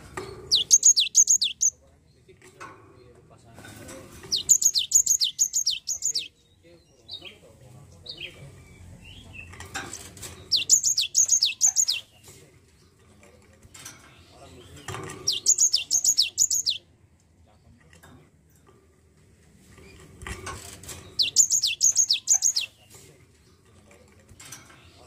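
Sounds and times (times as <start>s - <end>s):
bird singing whistled notes: 0.5s - 1.8s, 4.3s - 6.4s, 10.5s - 12.1s, 15.3s - 16.8s, 21.2s - 22.8s.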